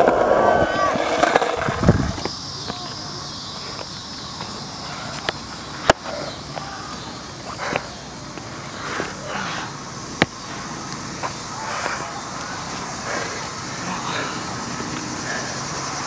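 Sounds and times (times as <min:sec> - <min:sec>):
outdoor skatepark background: 0:00.0 - 0:16.0.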